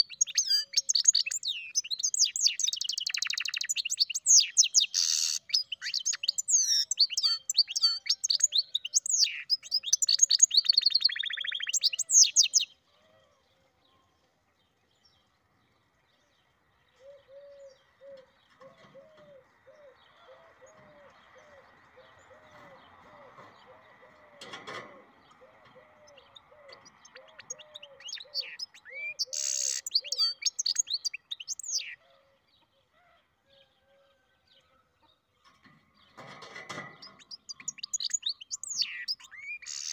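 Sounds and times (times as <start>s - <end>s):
bird singing with buzzing trill: 0.0s - 12.8s, 25.3s - 32.0s, 35.4s - 39.9s
low repeated bird notes: 17.0s - 32.0s.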